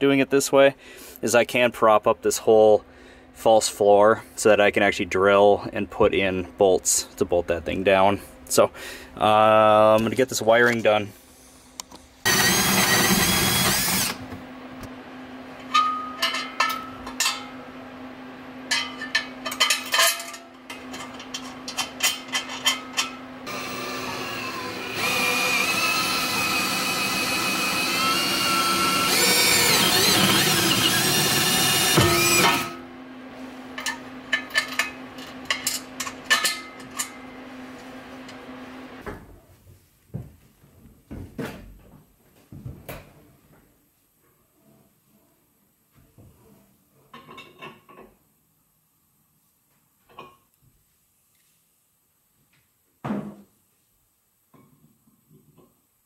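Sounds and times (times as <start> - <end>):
cordless drill drilling: 12.3 - 14.2, 23.5 - 32.8.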